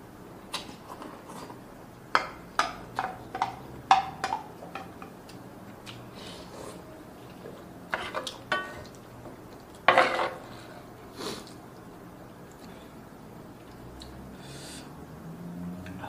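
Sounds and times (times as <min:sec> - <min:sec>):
wooden spoon knocking on a pan: 0:02.2 - 0:05.1.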